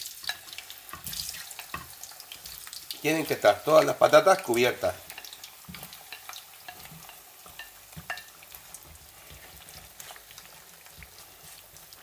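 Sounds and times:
potatoes sizzling in oil: 0.0 - 12.0
spatula knocking on pan: 5.7 - 9.8.

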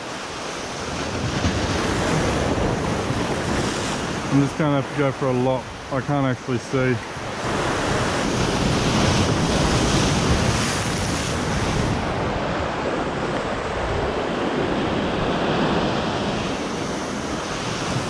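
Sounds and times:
wind buffeting microphone: 0.0 - 4.8, 6.8 - 18.0
surf breaking over rocks: 0.0 - 18.0.

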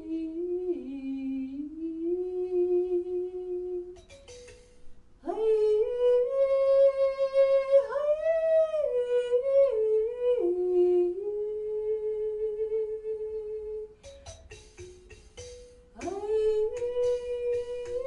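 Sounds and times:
woman singing wordlessly: 0.0 - 4.0, 5.2 - 13.9, 15.9 - 18.0.

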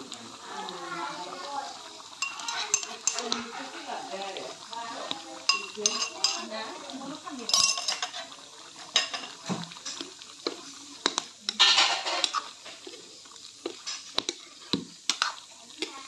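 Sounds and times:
ladle scraping metal pan: 11.0 - 13.0, 13.7 - 16.0.

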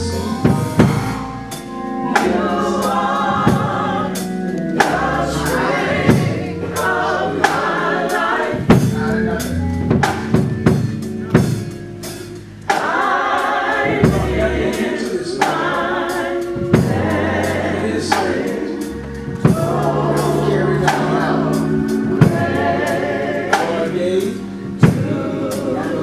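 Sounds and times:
bass notes: 0.0 - 26.0
choir singing gospel chords: 0.0 - 26.0
drum hit: 0.3 - 1.2, 5.9 - 7.6, 9.8 - 13.1.

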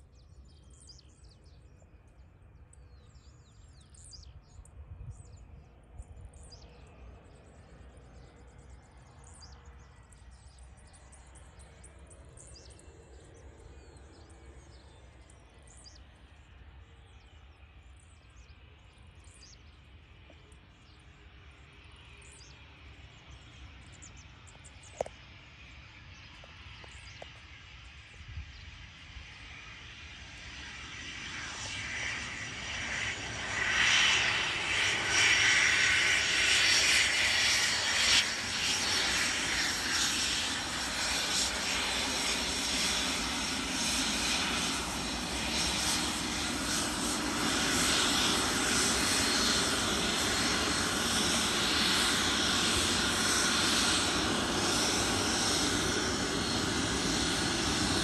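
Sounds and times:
jet engines hissing: 21.3 - 58.0.

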